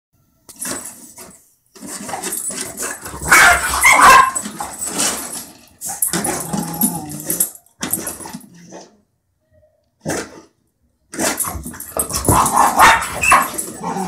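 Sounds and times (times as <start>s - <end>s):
dogs barking: 3.2s - 4.4s, 12.2s - 14.0s.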